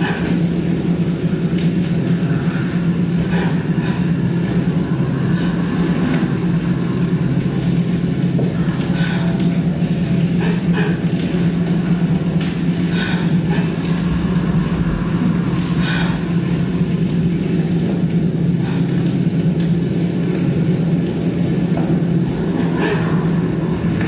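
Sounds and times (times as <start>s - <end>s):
low electronic drone: 0.0s - 24.0s.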